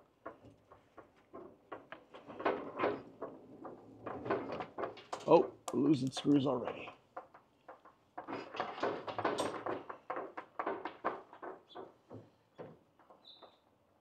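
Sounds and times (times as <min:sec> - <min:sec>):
table saw clunking and rattling: 0:08.2 - 0:12.8.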